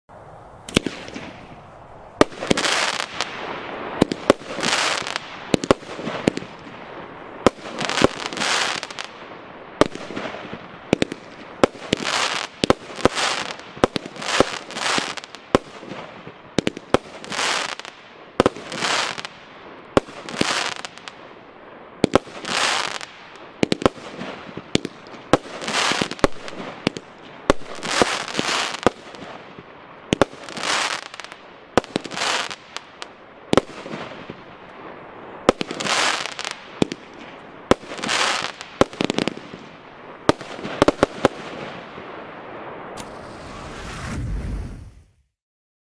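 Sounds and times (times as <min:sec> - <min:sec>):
firework bangs: 0:00.6 - 0:21.3, 0:22.0 - 0:45.2
rushing noise after bangs: 0:43.0 - 0:45.2.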